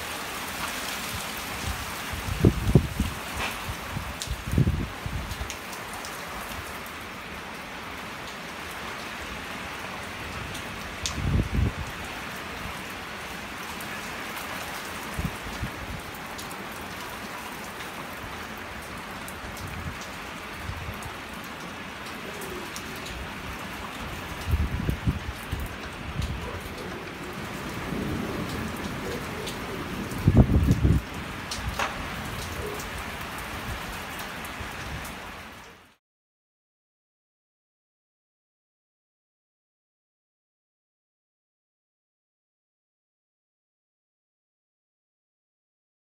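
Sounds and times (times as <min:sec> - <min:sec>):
steady rain hiss: 0:00.0 - 0:36.0
thunder rumbles: 0:22.5 - 0:33.0.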